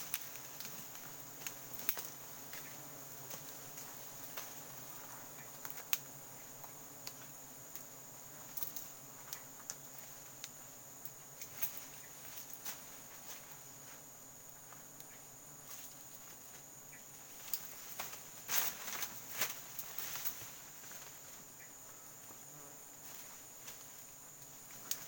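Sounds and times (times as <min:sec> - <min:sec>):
twigs snapping and leaves rustling: 0:00.0 - 0:13.6, 0:17.3 - 0:21.3, 0:23.1 - 0:25.0
insect chorus: 0:00.0 - 0:25.0.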